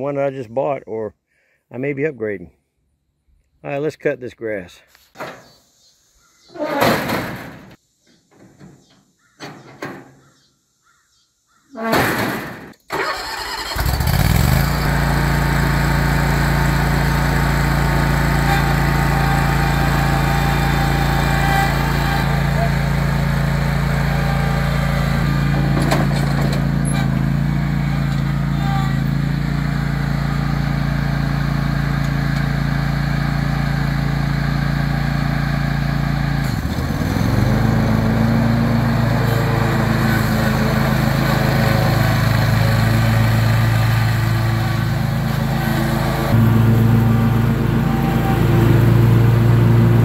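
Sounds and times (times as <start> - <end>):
mower engine running: 12.9 - 50.0.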